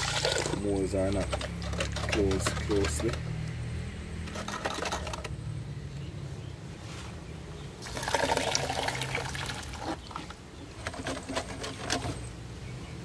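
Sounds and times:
steel rod squelching in concrete: 0.0s - 3.3s, 4.2s - 5.4s.

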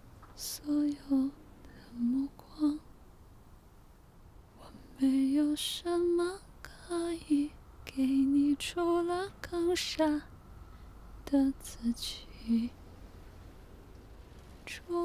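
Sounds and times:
woman singing a slow pop ballad: 0.4s - 2.8s, 11.3s - 12.7s, 14.7s - 15.0s.

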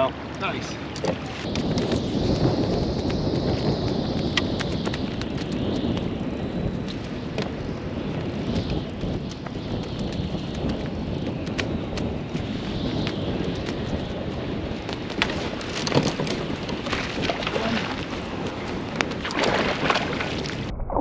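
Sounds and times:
wind buffeting microphone: 0.0s - 21.0s
water splashing against hull: 15.2s - 21.0s.

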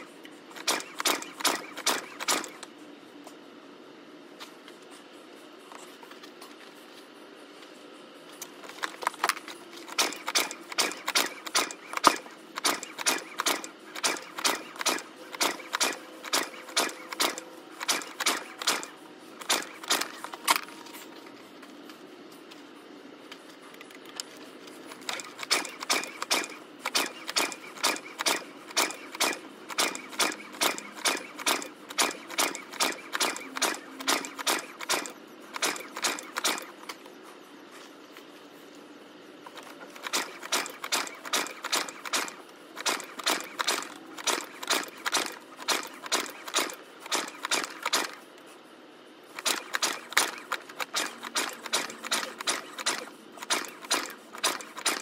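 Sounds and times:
generator recoil starter pulls: 8.4s - 20.7s, 25.0s - 36.9s.

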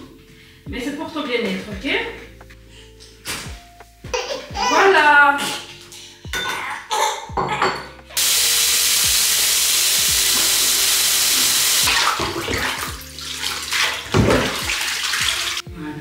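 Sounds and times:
shower spraying water into bathtub: 8.2s - 15.6s.

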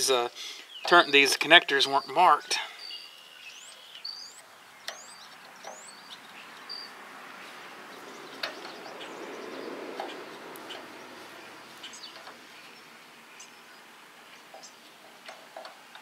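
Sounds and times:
small birds chirping: 0.0s - 16.0s
wires rustling: 4.9s - 13.2s.

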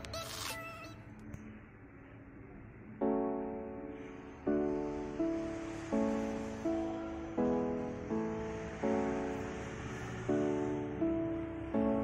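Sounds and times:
sustained keyboard chords: 2.7s - 12.0s.

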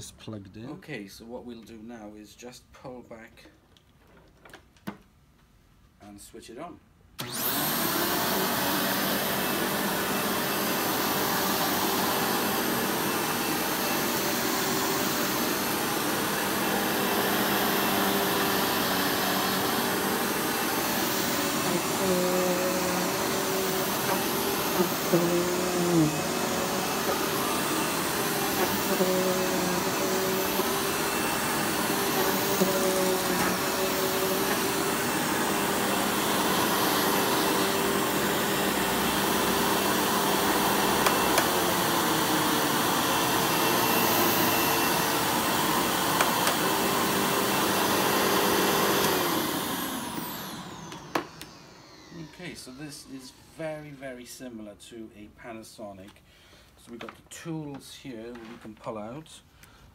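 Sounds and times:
vacuum cleaner running on carpet: 7.2s - 53.1s.

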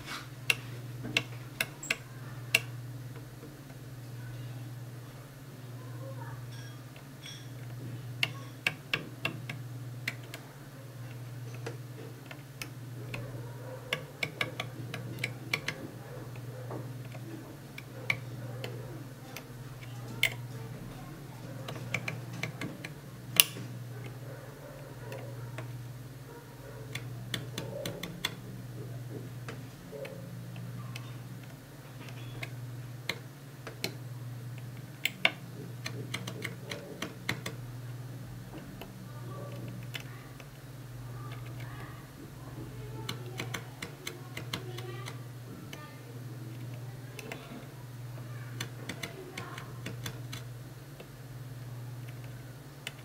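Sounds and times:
steady low hum: 0.0s - 53.0s
blade clicking and scratching: 41.2s - 51.1s.

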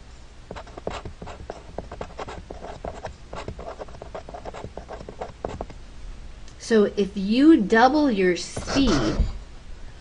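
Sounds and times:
pen scratching on paper: 0.5s - 5.7s, 8.6s - 9.3s.

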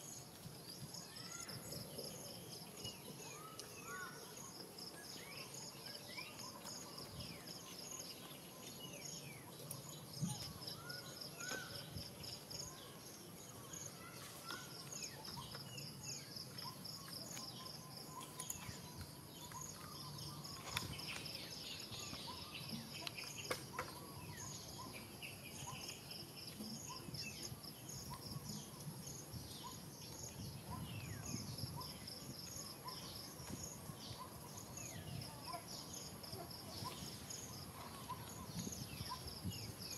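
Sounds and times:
insect chirping: 0.0s - 39.9s.

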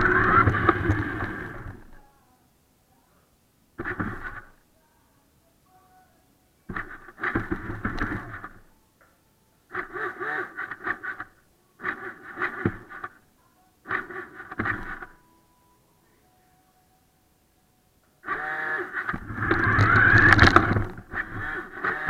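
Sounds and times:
toy car electric motor whirring: 0.0s - 1.8s, 9.7s - 13.2s, 13.9s - 15.2s, 18.2s - 22.0s.

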